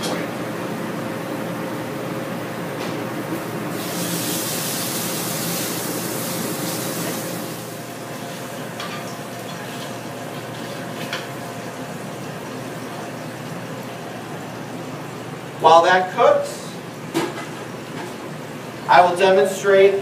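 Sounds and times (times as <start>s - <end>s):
fish sizzling in hot oil: 3.7s - 11.0s.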